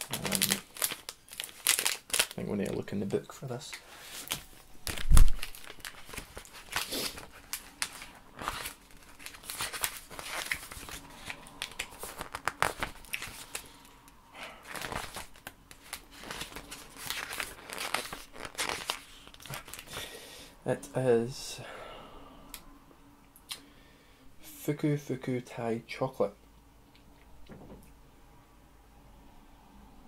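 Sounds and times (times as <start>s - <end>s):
snack wrapper crinkling: 0.0s - 2.4s, 4.1s - 14.0s, 14.6s - 20.1s
paper pages rustling: 4.0s - 13.8s, 14.7s - 20.0s.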